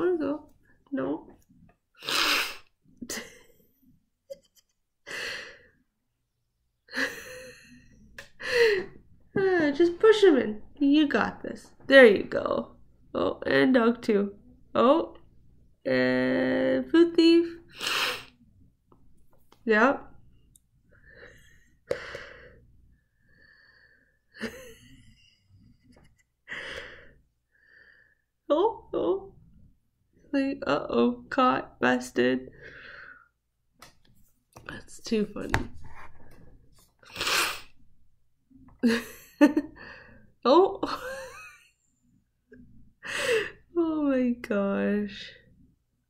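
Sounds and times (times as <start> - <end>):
soft breathing: 20.9 - 24.3.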